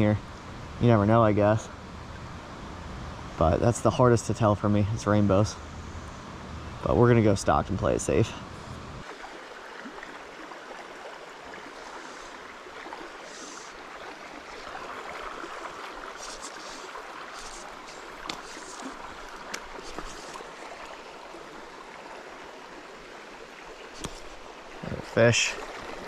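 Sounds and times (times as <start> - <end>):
creek water running over rocks: 0.0 - 2.3, 9.0 - 26.0.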